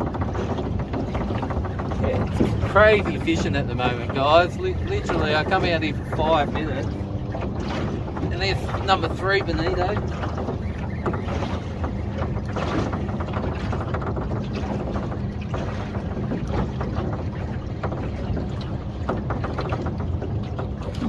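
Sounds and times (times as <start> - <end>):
boat engine humming: 0.0 - 21.0
wind buffeting microphone: 0.0 - 21.0.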